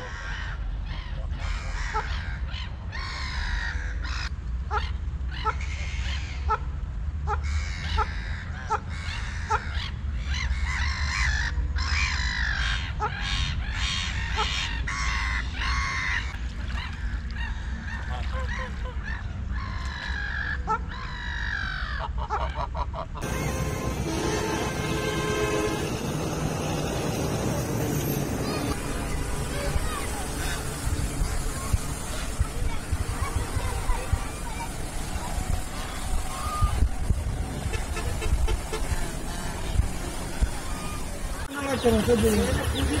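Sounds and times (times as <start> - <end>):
geese honking: 21.5 - 28.7
steady low rumble: 23.2 - 43.0.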